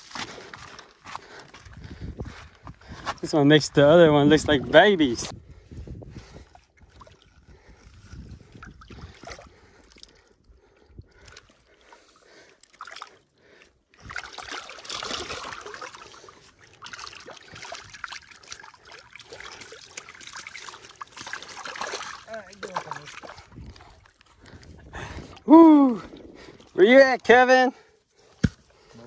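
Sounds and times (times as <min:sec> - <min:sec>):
fish splashing in shallow water: 0:06.5 - 0:24.3.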